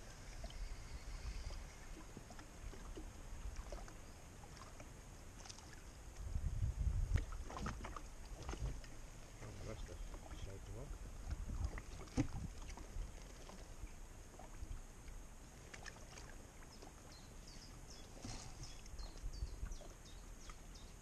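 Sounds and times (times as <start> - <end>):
wind rumble on microphone: 0.0 - 3.8, 5.8 - 14.8, 18.6 - 20.2.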